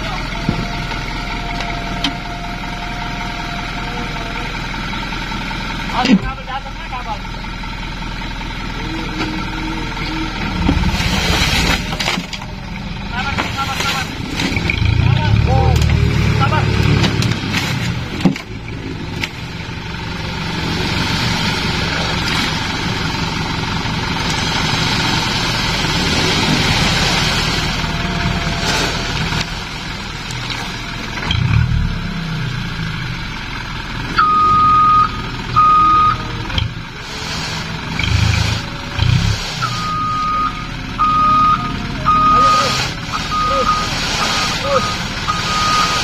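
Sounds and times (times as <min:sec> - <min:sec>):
truck engine running: 0:00.0 - 0:46.0
reversing beeper beeps: 0:34.2 - 0:36.3, 0:39.6 - 0:46.0
sand hissing sliding off: 0:37.0 - 0:39.8, 0:42.4 - 0:46.0.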